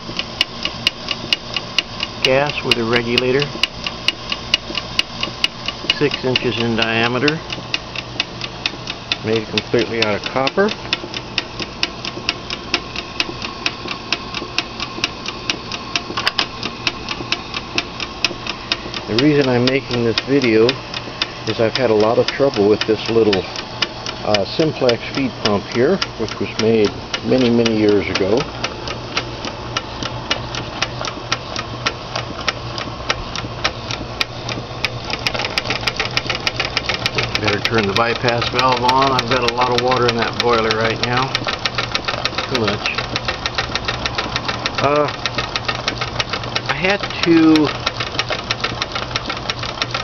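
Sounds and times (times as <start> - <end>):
steady hum: 0.0 - 50.0
steam engine ticking: 0.0 - 50.0.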